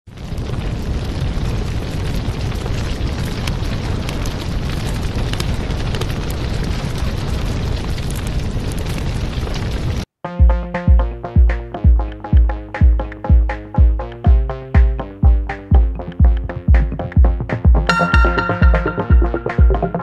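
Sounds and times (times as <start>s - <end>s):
fire crackles: 0.1s - 10.1s
fire rushing rumble: 0.1s - 10.1s
electronic music with thumping beat: 10.3s - 20.0s.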